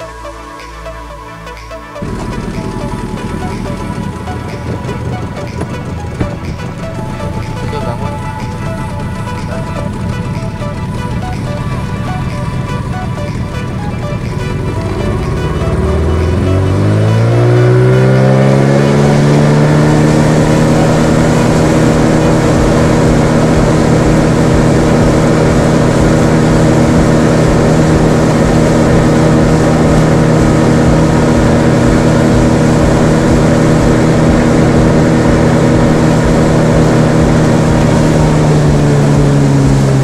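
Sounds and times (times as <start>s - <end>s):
outboard motor drone: 0.0s - 40.0s
wind and water rushing: 15.8s - 40.0s.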